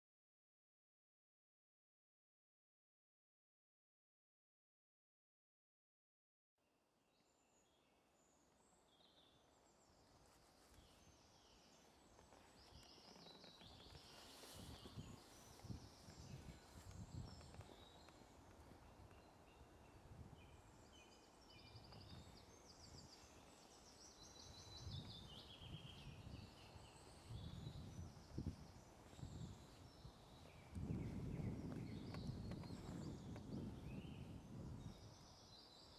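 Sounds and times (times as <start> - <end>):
songbirds chirping and trilling: 7.5 - 35.9.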